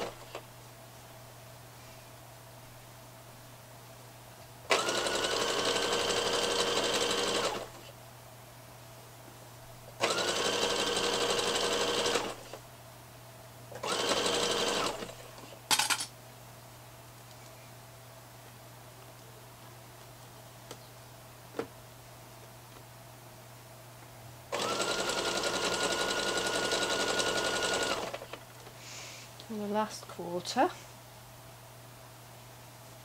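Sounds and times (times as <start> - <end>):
sewing machine stitching: 4.7 - 7.8, 10.0 - 12.6, 13.8 - 15.3, 24.5 - 28.4.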